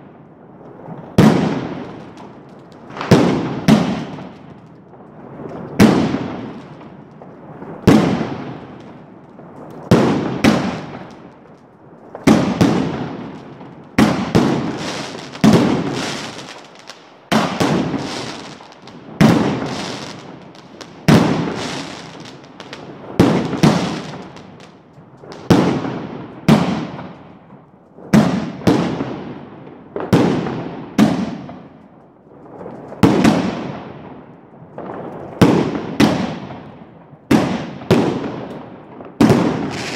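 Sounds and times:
fireworks bursting: 0.7s - 27.4s, 37.3s - 39.9s.

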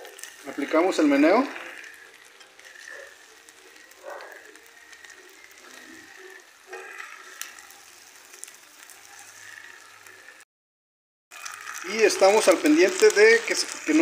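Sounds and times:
spoon scraping in pot: 1.5s - 7.7s.

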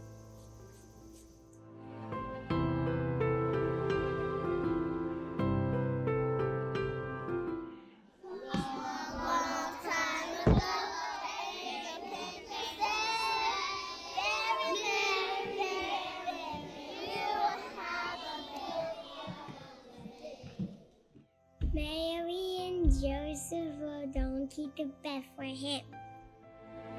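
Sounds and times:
young children singing: 8.2s - 20.7s
sharp knock: 10.4s - 10.7s.

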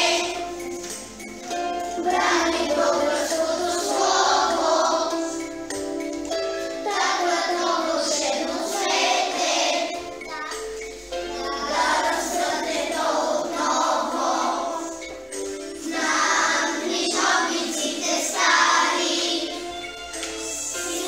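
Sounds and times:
children's choir singing: 0.0s - 21.0s
instrumental accompaniment: 0.0s - 21.0s.

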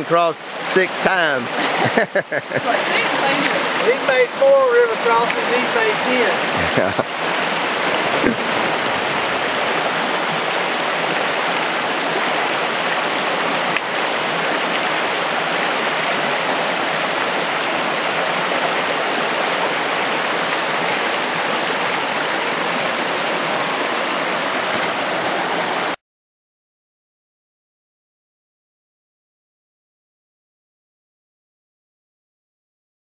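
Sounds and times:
creek rushing over stones: 0.0s - 26.0s.

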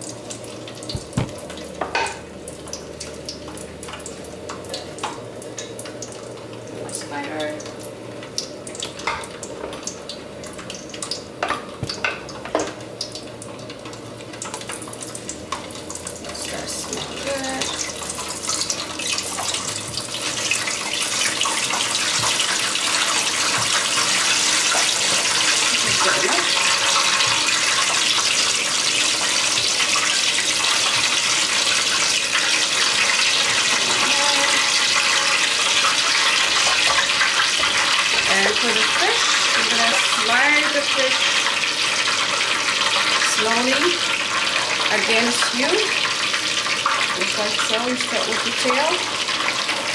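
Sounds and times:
garlic sizzling in hot oil: 0.0s - 49.9s
oil popping: 0.8s - 2.0s.

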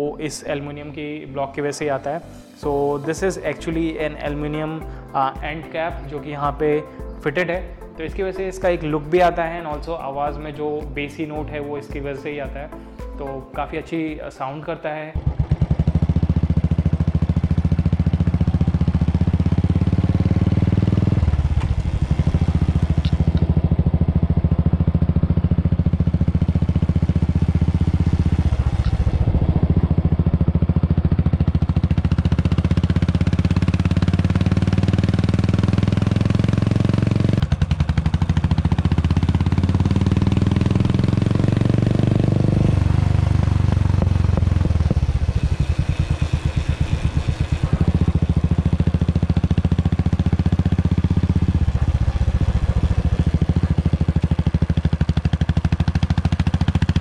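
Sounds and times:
motorcycle engine accelerating: 15.2s - 57.0s.

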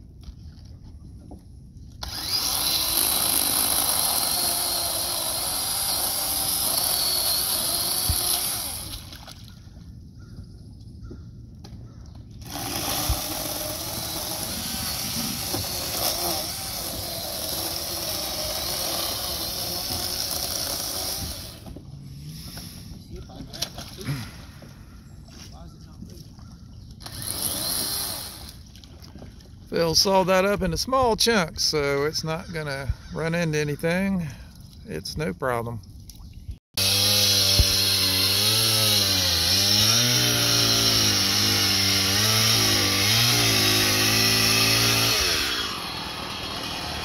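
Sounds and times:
chainsaw cutting wood: 2.0s - 9.1s, 12.4s - 21.8s, 27.0s - 28.6s, 36.8s - 47.0s.

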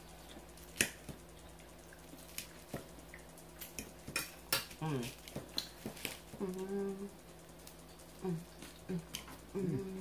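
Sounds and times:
chewing: 0.0s - 7.0s
person humming mm: 6.3s - 7.2s, 8.2s - 10.0s.

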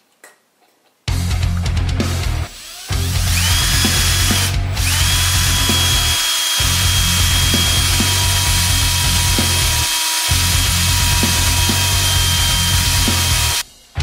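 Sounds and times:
background music: 1.1s - 14.0s
cordless drill whining: 2.5s - 13.6s.

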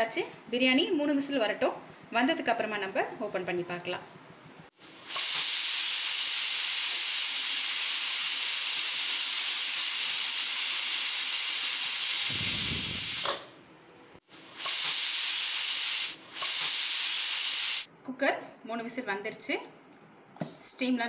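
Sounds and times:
pressure cooker steam hissing: 4.8s - 13.4s, 14.3s - 17.9s.

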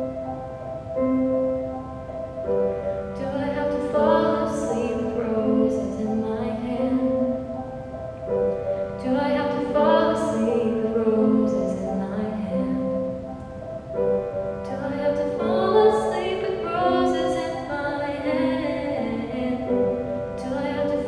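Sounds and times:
piano accompaniment: 0.0s - 21.0s
woman singing: 3.1s - 7.4s, 9.0s - 13.1s, 14.6s - 21.0s.

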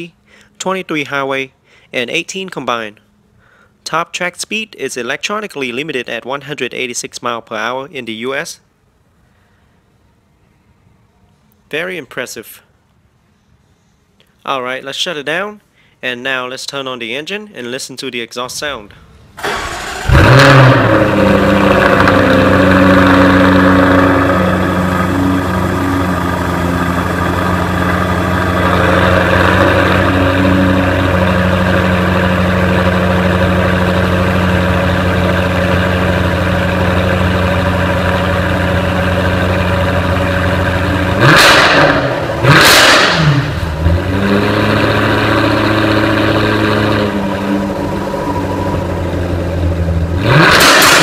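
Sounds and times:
car engine starting and idling: 19.2s - 51.0s
engine throttle blips: 19.4s - 51.0s.

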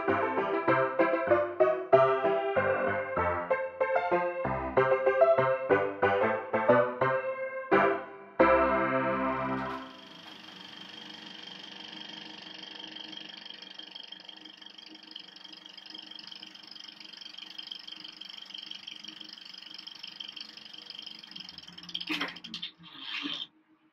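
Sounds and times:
piano chord: 0.0s - 10.2s
high whine: 9.6s - 22.0s
mechanical whirring hum: 9.6s - 23.4s.

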